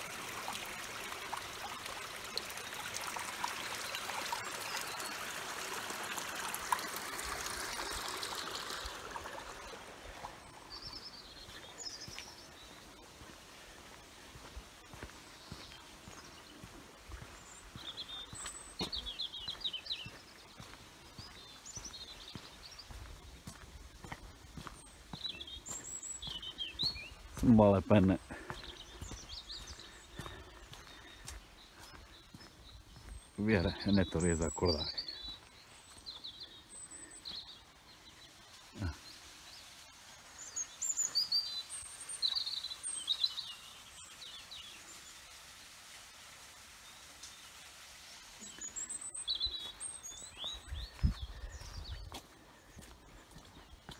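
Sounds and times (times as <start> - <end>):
songbirds chirping: 0.0 - 53.9
footsteps on muddy dirt track: 3.7 - 39.6, 48.4 - 53.9
faint steady hiss: 33.1 - 50.3.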